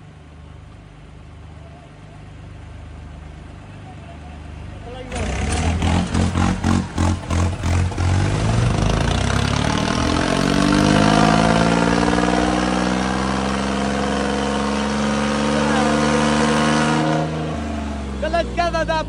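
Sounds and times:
tractor diesel engine revving: 4.9s - 19.0s.

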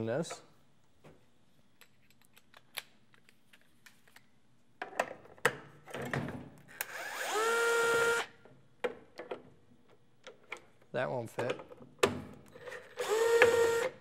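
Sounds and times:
electric screwdriver motor whining: 6.9s - 8.3s, 13.0s - 14.0s.

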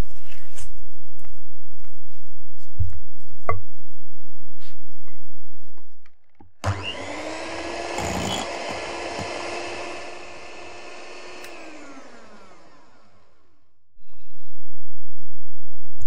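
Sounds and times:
electric whisk motor whine: 6.6s - 13.8s.

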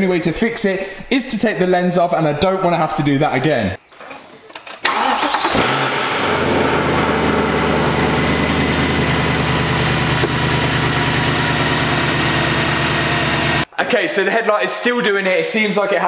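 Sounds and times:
car engine starting and idling: 4.8s - 13.7s.

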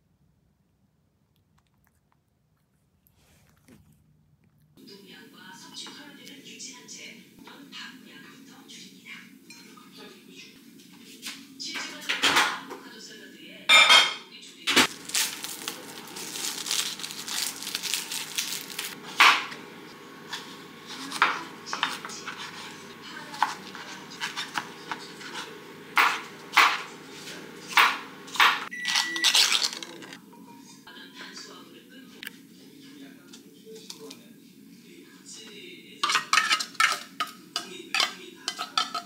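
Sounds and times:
plates and utensils clinking: 13.7s - 15.0s, 20.3s - 30.8s, 36.0s - 39.0s
knife chopping on cutting board: 23.4s - 26.9s, 27.7s - 28.6s.

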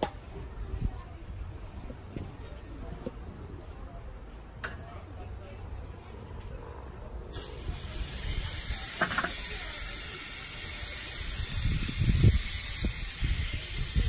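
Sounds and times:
steady hiss: 7.4s - 14.0s.

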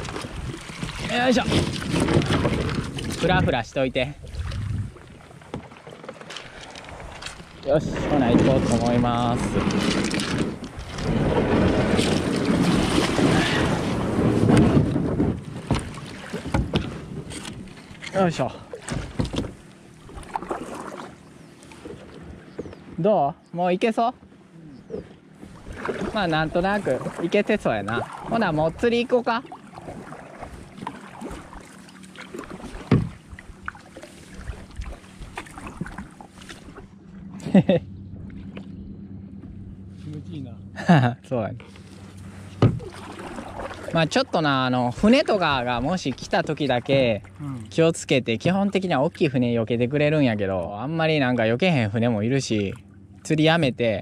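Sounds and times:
kayak hull scraping over pebbles: 0.0s - 22.1s, 25.4s - 37.0s, 41.6s - 47.2s
paddle dipping in water: 0.0s - 23.0s, 24.2s - 40.2s, 41.6s - 49.6s
water splashes and drips: 15.6s - 22.3s, 25.6s - 36.9s, 41.7s - 47.8s.

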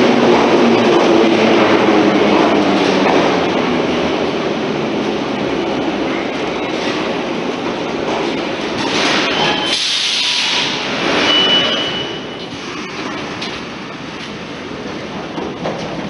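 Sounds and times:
train rumbling into station: 0.0s - 16.0s
thin high squeal: 11.2s - 12.4s.

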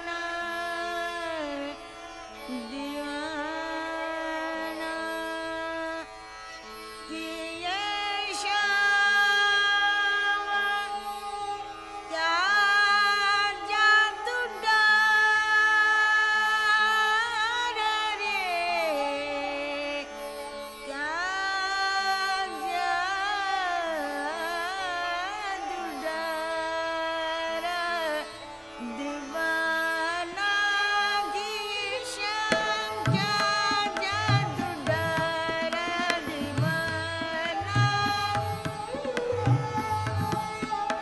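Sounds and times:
sarangi melody: 0.0s - 41.0s
person singing: 28.8s - 41.0s.

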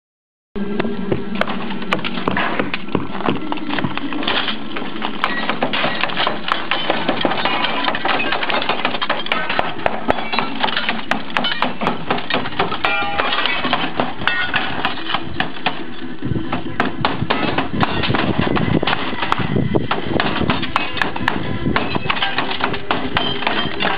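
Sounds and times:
glass panes smashing: 5.3s - 15.3s.

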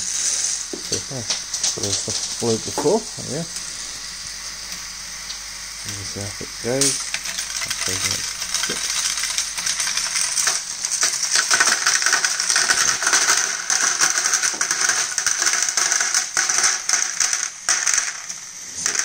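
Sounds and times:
plastic pieces clattering: 6.7s - 19.0s.

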